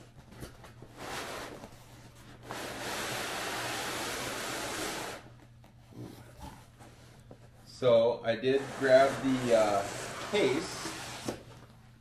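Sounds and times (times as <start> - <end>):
cardboard sliding on cardboard: 2.4 - 5.2, 8.4 - 11.6.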